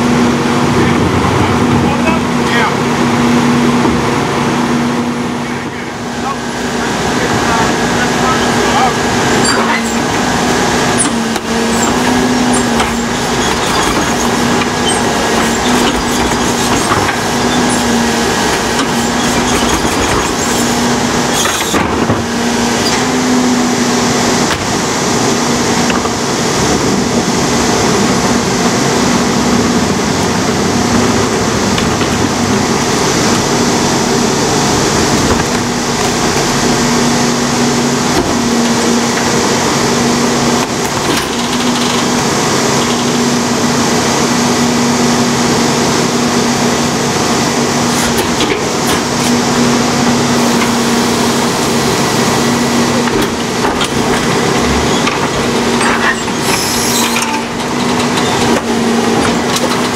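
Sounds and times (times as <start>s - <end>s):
garbage truck hydraulics running: 0.0s - 59.9s
carts knocking against hopper: 10.9s - 23.1s, 51.7s - 59.9s.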